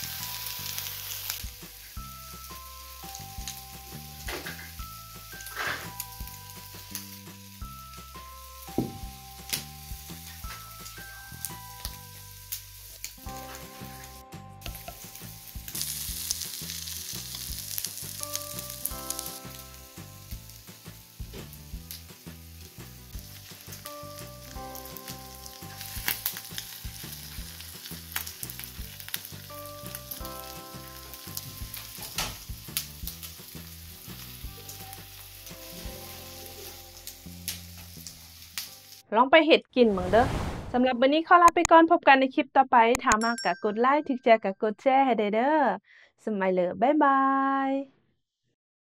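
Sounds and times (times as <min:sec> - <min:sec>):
meat sizzling on grill pan: 0:00.0 - 0:39.0
soft background music: 0:00.0 - 0:39.6.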